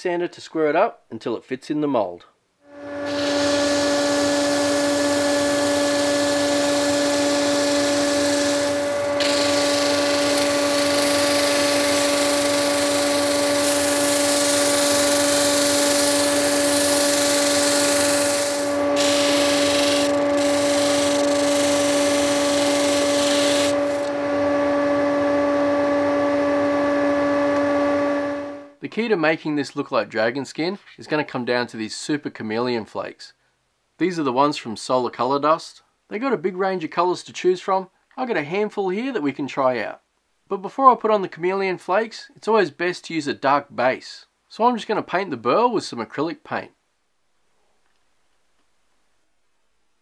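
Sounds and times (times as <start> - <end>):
disc sander motor hum: 2.7 - 28.6
sanding hiss on wood: 3.0 - 24.1.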